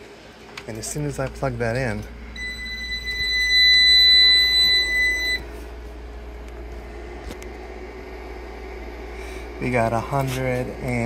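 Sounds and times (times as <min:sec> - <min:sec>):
steady low hum: 0:00.0 - 0:11.0
high-pitched electronic beep: 0:02.4 - 0:05.4.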